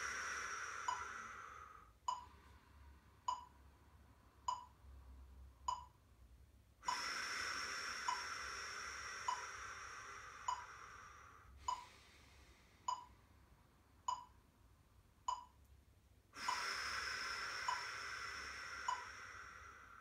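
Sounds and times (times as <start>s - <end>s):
long breaths: 0.0s - 3.3s, 6.8s - 13.4s, 16.4s - 20.0s.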